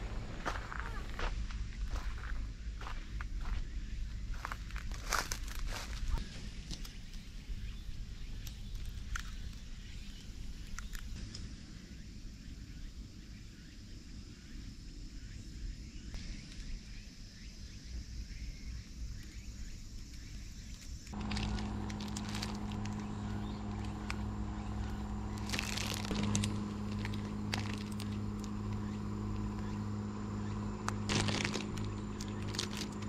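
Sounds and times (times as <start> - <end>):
faint chirps: 6.1 - 33.0
electric fan humming: 21.1 - 33.0
low rumble: 21.1 - 33.0
plastic bag crinkling: 21.2 - 29.4, 30.8 - 33.0.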